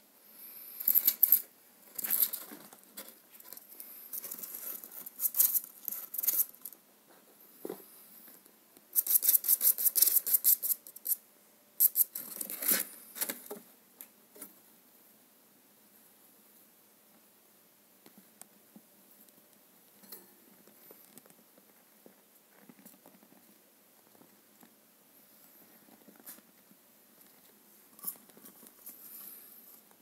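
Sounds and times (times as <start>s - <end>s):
gerbils scratching: 0.9s - 6.8s, 9.0s - 11.2s.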